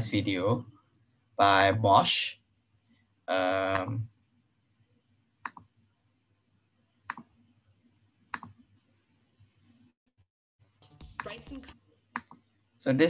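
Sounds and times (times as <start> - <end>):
computer mouse clicking: 5.4 - 5.7, 7.1 - 7.3, 8.3 - 8.6, 12.2 - 12.4.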